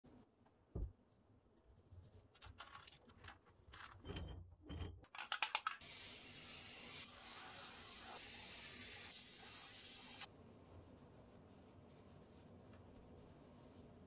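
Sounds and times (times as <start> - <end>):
aerosol can spraying: 5.8 - 10.3.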